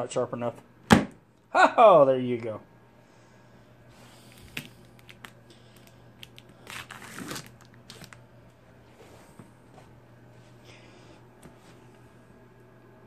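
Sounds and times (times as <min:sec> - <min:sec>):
knife slitting packing tape: 0:06.3 - 0:08.2
tape tearing rasp: 0:06.6 - 0:08.1.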